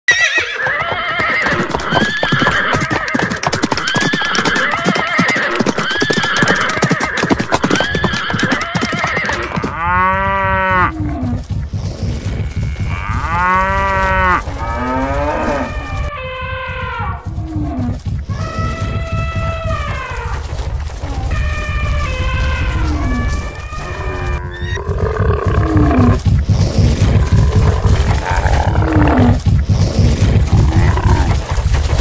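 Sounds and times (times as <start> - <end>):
animal call: 0.1 - 31.5
hooves drumming: 0.1 - 32.0
cattle mooing: 9.2 - 11.4, 12.0 - 20.3, 21.3 - 26.2, 26.8 - 29.4.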